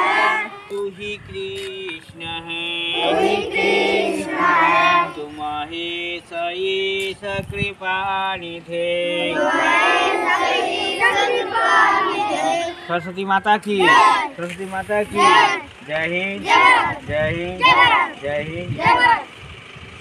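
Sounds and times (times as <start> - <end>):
children singing in unison: 0.0 - 0.8, 2.9 - 5.3, 9.1 - 13.0, 15.2 - 15.7.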